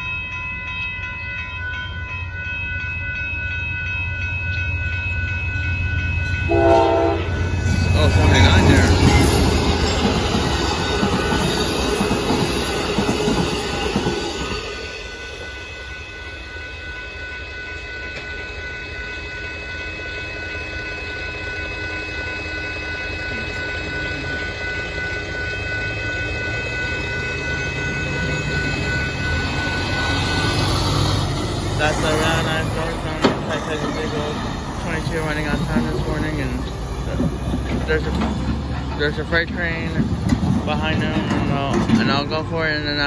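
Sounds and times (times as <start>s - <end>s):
crossing warning bell ringing: 0.0s - 43.0s
train cars rumbling over crossing: 3.4s - 15.7s, 19.8s - 43.0s.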